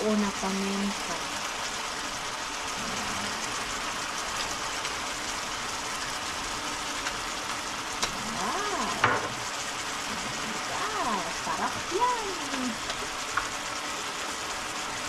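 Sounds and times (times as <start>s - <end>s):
food sizzling in a frying pan: 0.0s - 15.0s.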